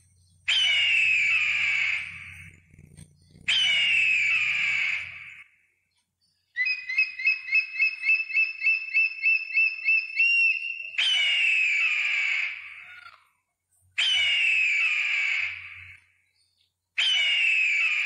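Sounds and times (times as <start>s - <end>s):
eagle piping calls: 0.0s - 5.5s, 6.4s - 13.4s, 14.0s - 16.2s, 17.0s - 18.0s
eagle harsh falling scream: 3.5s - 5.4s.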